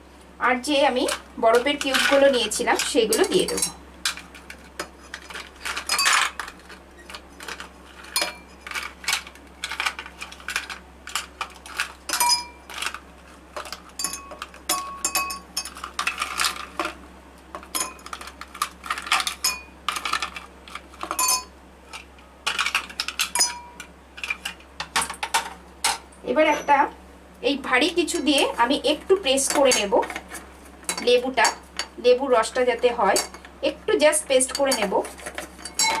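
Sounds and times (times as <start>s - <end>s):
ice cubes clinking in glass: 5.2s - 6.5s.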